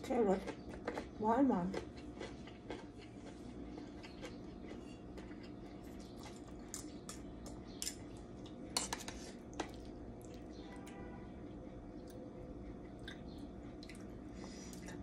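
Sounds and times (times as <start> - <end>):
cutlery clinking on metal bowls: 6.7 - 8.1, 8.7 - 9.8.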